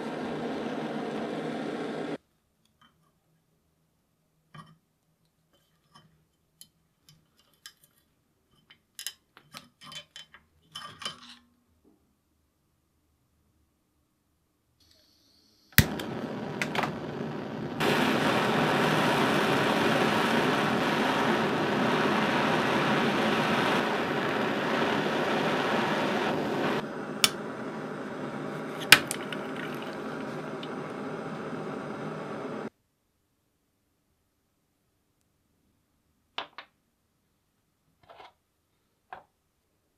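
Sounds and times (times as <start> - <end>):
machine running: 0.0 - 2.2, 15.8 - 32.7
rushing hiss of air: 0.0 - 2.2, 14.9 - 32.7.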